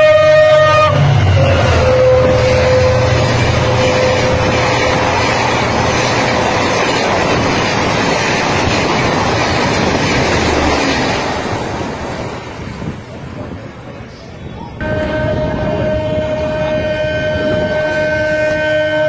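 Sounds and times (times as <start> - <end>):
train horn: 0.0 - 5.4, 14.8 - 19.0
train wheels rumbling on rails: 0.0 - 19.0.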